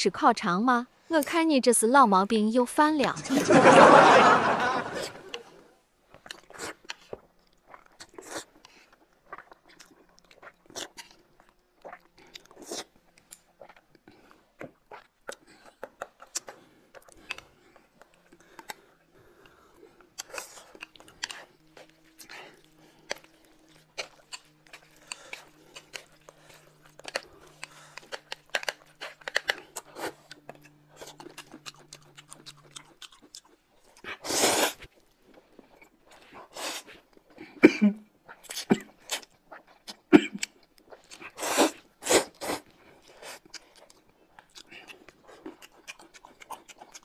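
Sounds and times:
slurping noodles: 0:03.2 - 0:37.6, 0:40.9 - 0:43.7
chewing: 0:03.2 - 0:47.0.

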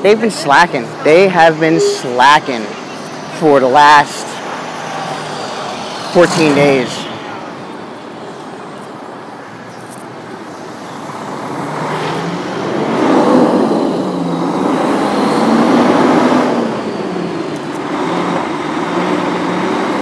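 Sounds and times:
truck diesel engine passing: 0:00.0 - 0:08.9.

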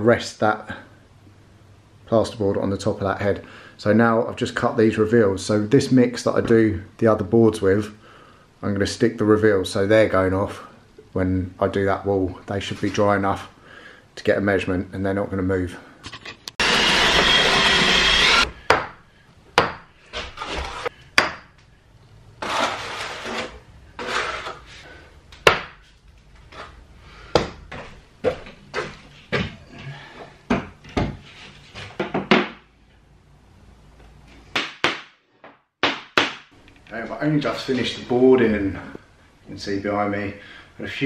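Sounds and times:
trowel scraping adhesive: 0:22.4 - 0:24.7.

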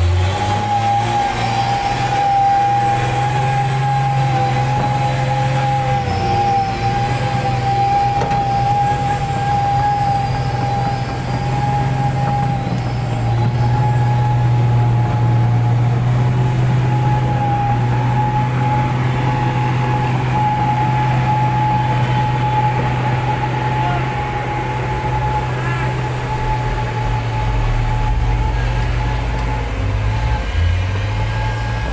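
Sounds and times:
heavy diesel engines under load: 0:00.0 - 0:31.9
steady whine: 0:00.0 - 0:31.9.

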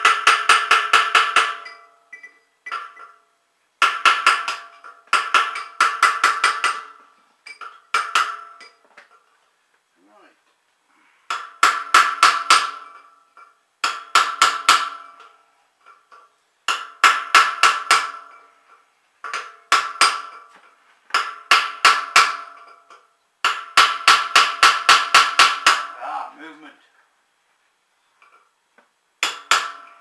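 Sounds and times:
hammer tapping steel punch: 0:03.8 - 0:08.8, 0:29.2 - 0:30.0.

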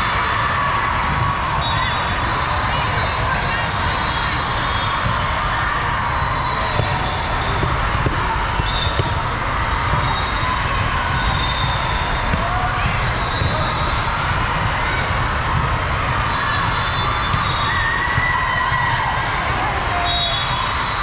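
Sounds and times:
crowd and voices din: 0:00.0 - 0:21.0
volleyballs struck and bouncing: 0:05.0 - 0:05.4, 0:06.7 - 0:10.1, 0:12.0 - 0:18.3.

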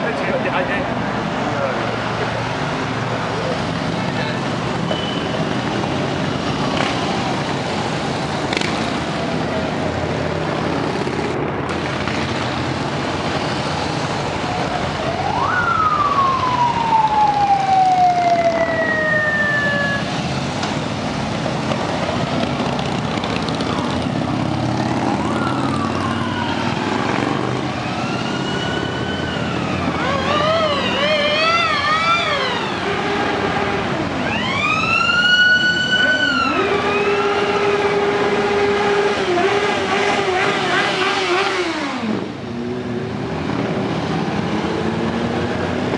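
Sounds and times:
siren wailing: 0:14.4 - 0:20.2, 0:24.9 - 0:38.4
motorcycles rumbling past: 0:21.8 - 0:28.3.

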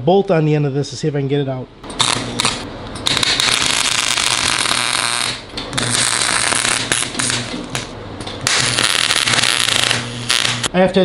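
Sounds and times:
welder arc crackling: 0:01.9 - 0:10.7.

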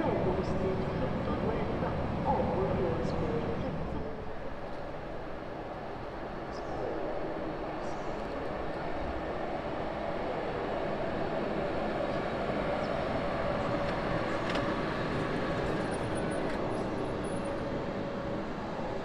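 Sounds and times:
train wheels rumbling on rails: 0:08.2 - 0:19.0.

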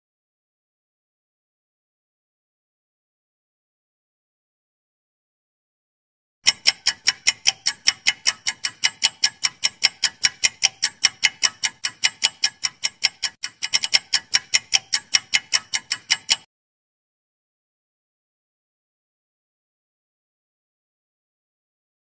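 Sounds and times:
clock ticking: 0:06.4 - 0:16.5.

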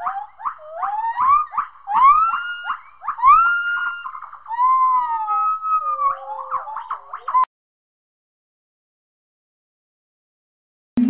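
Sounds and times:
gibbons whooping and hooting: 0:00.0 - 0:07.5.

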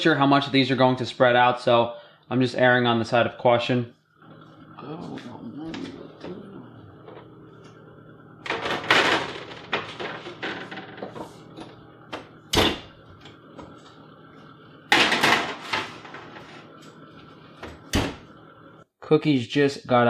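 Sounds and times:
oven door banging shut: 0:12.2 - 0:13.0, 0:17.7 - 0:18.3.

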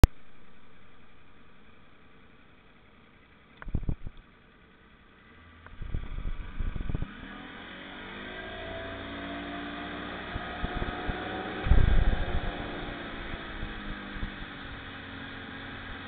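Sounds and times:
motorboat engine under throttle: 0:01.1 - 0:16.0
low thumps: 0:10.3 - 0:14.4.

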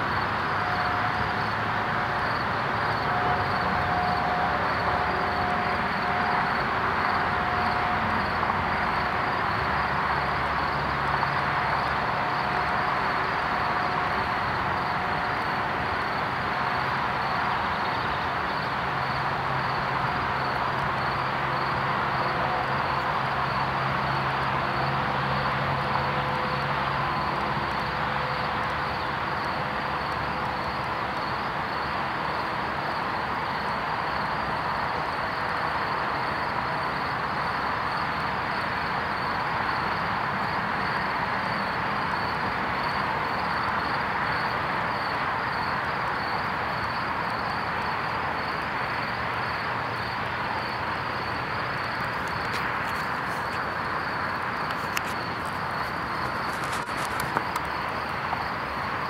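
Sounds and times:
distant road traffic hum: 0:00.0 - 0:59.0
insects chirping: 0:00.0 - 0:59.0.

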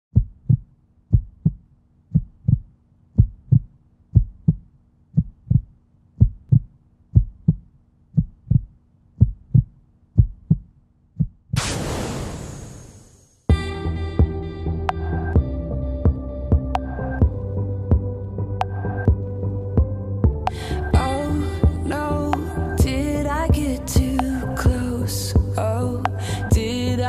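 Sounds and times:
heartbeat double thump: 0:00.1 - 0:04.6, 0:05.2 - 0:11.6
loud hissing crash: 0:11.6 - 0:13.5.

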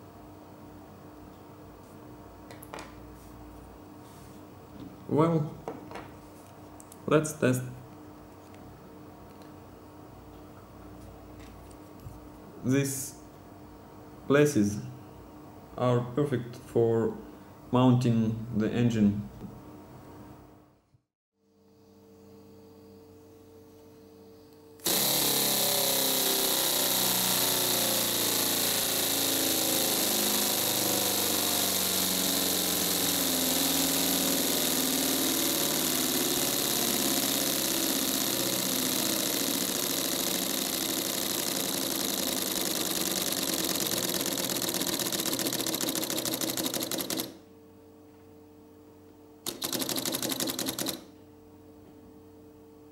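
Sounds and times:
valve and piston clatter: 0:24.8 - 0:47.4, 0:49.4 - 0:51.0.

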